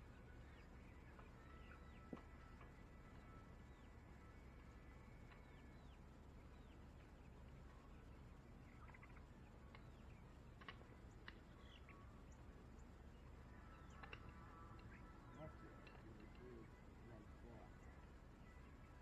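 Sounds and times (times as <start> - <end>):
faint bird chirps: 0.0 - 19.0
faint low outdoor rumble: 0.0 - 19.0.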